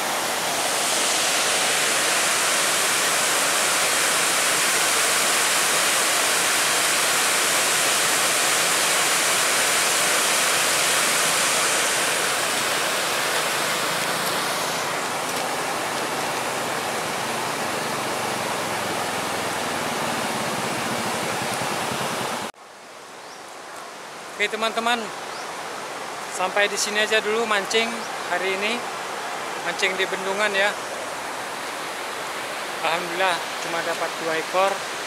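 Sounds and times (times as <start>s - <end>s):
river water rushing over weir: 0.0s - 22.5s, 24.1s - 35.0s.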